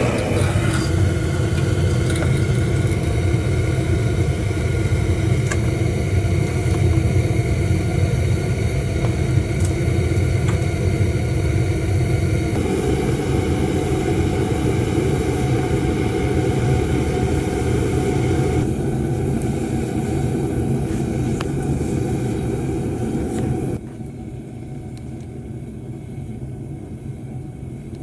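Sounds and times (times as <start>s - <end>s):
gas burner flame roaring: 0.0s - 28.0s.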